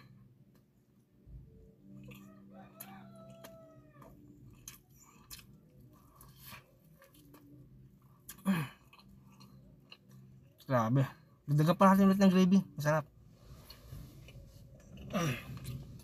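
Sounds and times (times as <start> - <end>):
chewing crispy chicken: 1.9 - 10.7
rooster crowing: 2.2 - 4.1.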